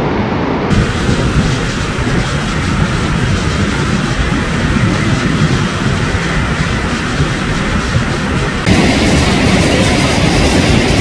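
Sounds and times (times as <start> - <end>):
waterfall roaring: 8.6 - 11.0.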